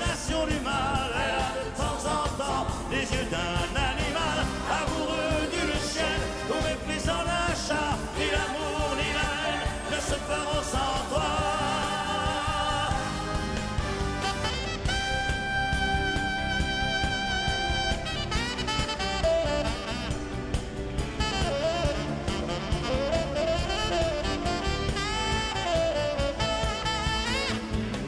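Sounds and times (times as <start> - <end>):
man singing: 0.0 - 13.2
live band accompaniment: 0.0 - 28.0.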